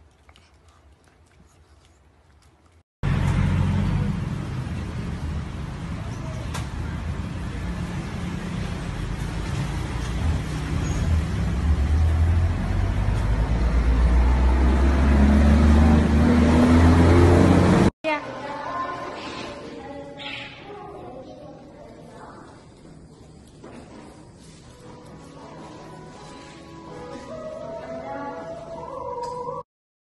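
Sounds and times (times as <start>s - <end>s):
road traffic rumble: 3.0s - 17.9s
vehicle engine running nearby: 3.0s - 17.9s.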